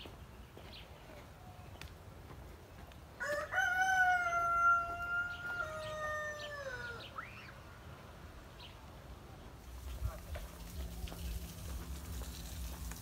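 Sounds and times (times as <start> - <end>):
rooster crowing: 3.2 - 7.2.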